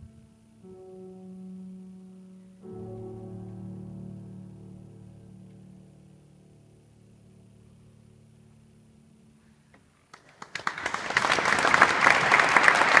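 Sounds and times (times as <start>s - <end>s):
audience applauding: 10.1s - 13.0s.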